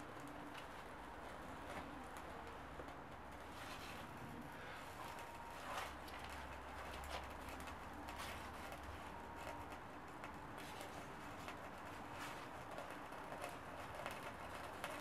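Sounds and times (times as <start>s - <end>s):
fire crackling and popping: 5.0s - 15.0s.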